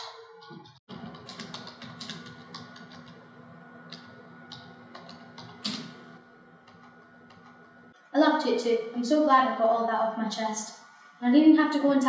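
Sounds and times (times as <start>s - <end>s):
computer keyboard typing: 0.9s - 7.6s.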